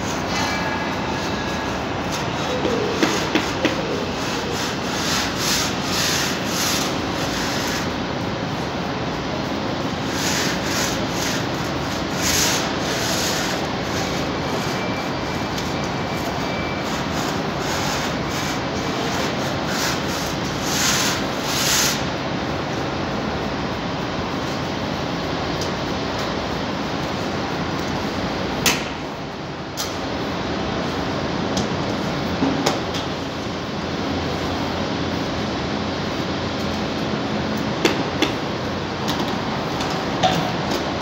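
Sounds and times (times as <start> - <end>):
paint roller swishing: 0.0 - 8.1, 9.9 - 22.0
steady hall hum: 0.0 - 41.0.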